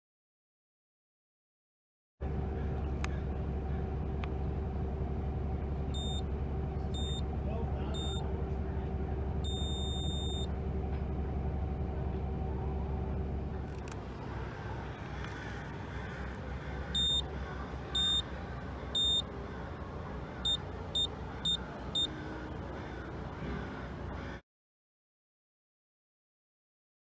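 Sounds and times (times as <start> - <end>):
low hum: 2.2 - 24.4
high-pitched electronic beeps: 8.0 - 8.2, 9.4 - 10.5, 18.0 - 18.2, 19.0 - 19.2.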